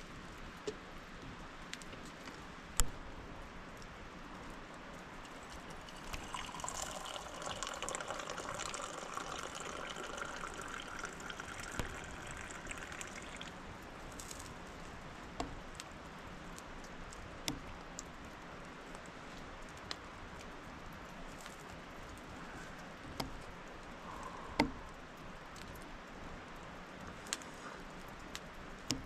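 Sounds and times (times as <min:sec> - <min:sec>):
liquid pouring into container: 0:05.2 - 0:13.7.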